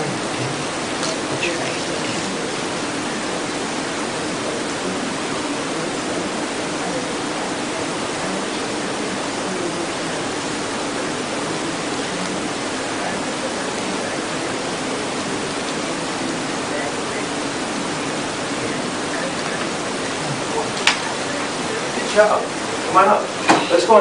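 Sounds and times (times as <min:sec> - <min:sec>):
faint low hum: 0:00.0 - 0:24.0
steady hiss: 0:00.0 - 0:24.0.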